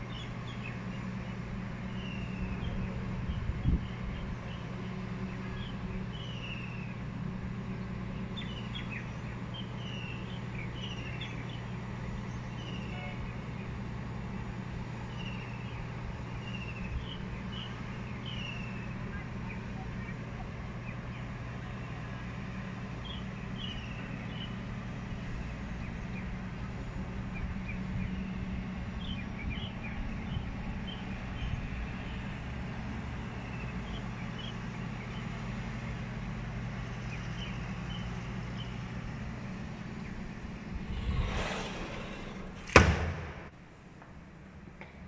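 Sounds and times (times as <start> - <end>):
brief rush of noise: 40.8 - 43.5.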